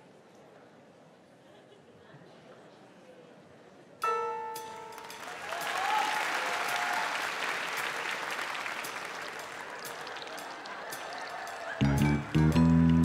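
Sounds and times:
backing music: 0:04.0 - 0:13.0
audience applause: 0:04.9 - 0:13.0.

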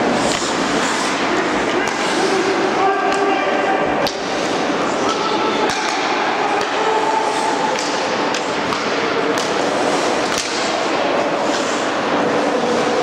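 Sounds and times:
skates scraping on ice: 0:00.0 - 0:03.0, 0:06.8 - 0:13.0
hockey stick hitting puck: 0:00.0 - 0:03.4, 0:04.0 - 0:11.9.

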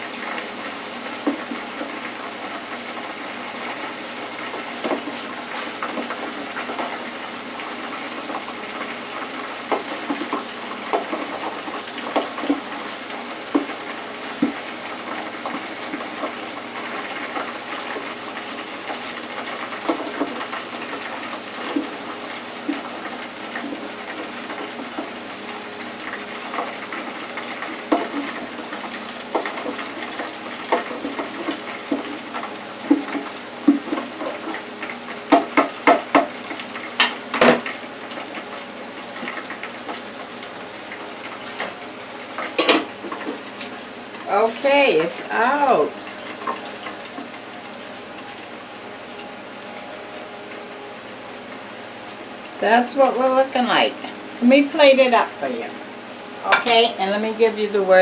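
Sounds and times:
hot oil bubbling and sizzling: 0:00.0 - 0:58.0
metal utensil tapping fryer: 0:01.0 - 0:02.1, 0:03.0 - 0:07.0, 0:07.6 - 0:18.1, 0:18.8 - 0:25.2, 0:26.0 - 0:40.1, 0:40.9 - 0:43.7, 0:56.4 - 0:57.0.

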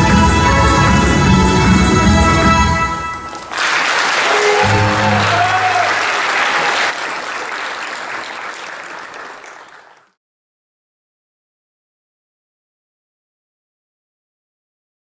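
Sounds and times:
audience applause: 0:03.3 - 0:10.2.

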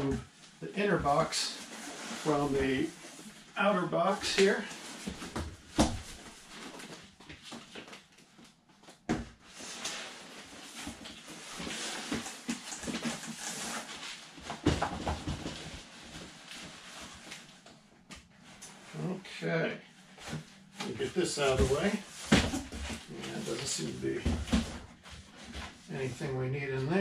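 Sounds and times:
cardboard boxes scraping and rustling: 0:09.6 - 0:17.2.

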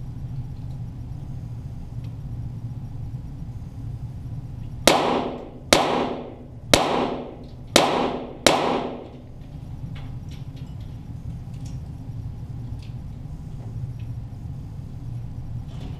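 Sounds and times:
pistol shots echoing: 0:04.9 - 0:09.3.

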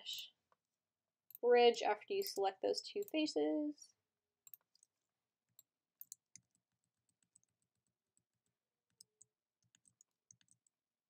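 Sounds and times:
computer mouse clicks: 0:04.4 - 0:04.9, 0:05.6 - 0:07.6, 0:08.9 - 0:10.7
keyboard clicks: 0:08.9 - 0:10.7.

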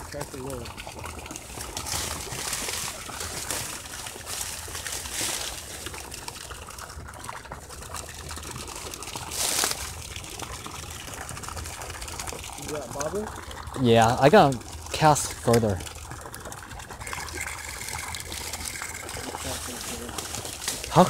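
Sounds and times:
dry reeds rustling and crackling: 0:01.4 - 0:06.4, 0:09.2 - 0:10.0, 0:18.4 - 0:21.0.

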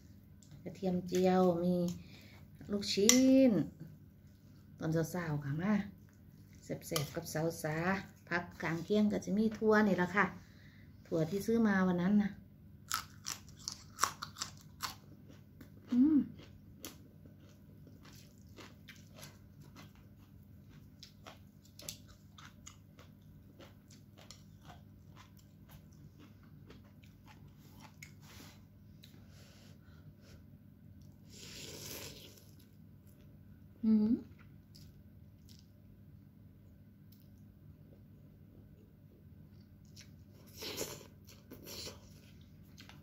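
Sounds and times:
crunchy bean bitten and chewed: 0:12.9 - 0:28.2.

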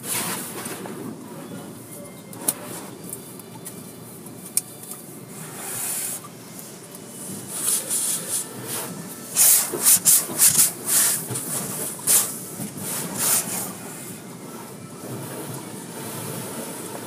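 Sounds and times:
high-pressure water spray hissing: 0:05.3 - 0:06.3, 0:07.5 - 0:14.1.

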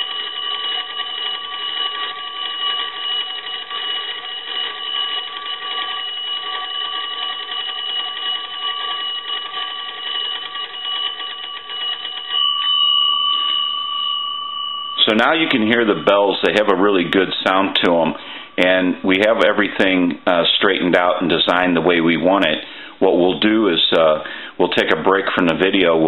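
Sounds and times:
telephone bells ringing rapidly: 0:00.0 - 0:18.7.

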